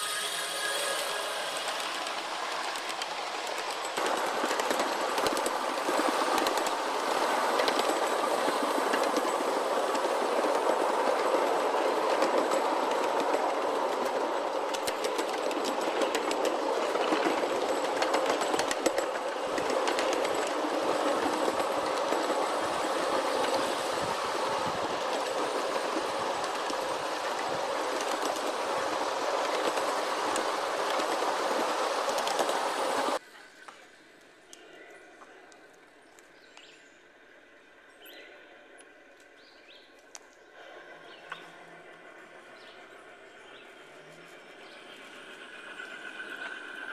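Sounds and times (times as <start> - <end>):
miniature train wheels rolling on rail: 0.0 - 33.2, 41.2 - 46.9
wheels clicking over rail joints: 1.4 - 33.2.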